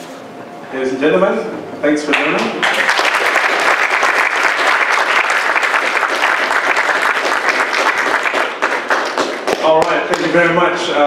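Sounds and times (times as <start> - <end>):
audience applauding: 2.1 - 10.3.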